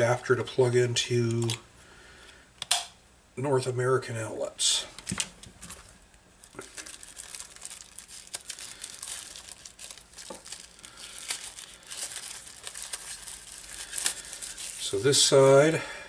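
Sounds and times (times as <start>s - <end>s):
plastic bag crinkling: 5.0s - 15.7s.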